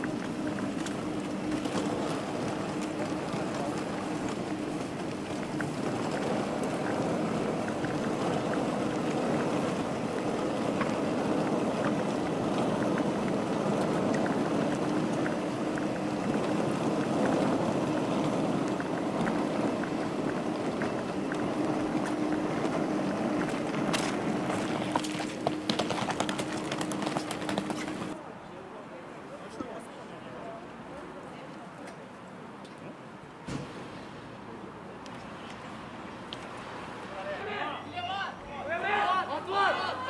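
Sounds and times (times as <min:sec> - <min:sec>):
engine drone: 0:00.0 - 0:28.2.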